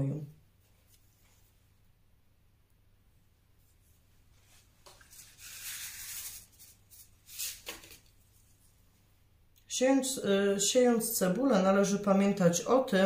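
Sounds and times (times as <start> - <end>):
seed packet rustling and crinkling: 5.0 - 8.2.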